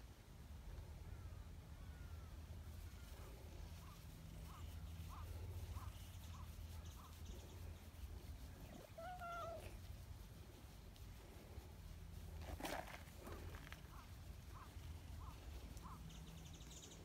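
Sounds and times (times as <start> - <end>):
cat meowing: 8.8 - 9.8.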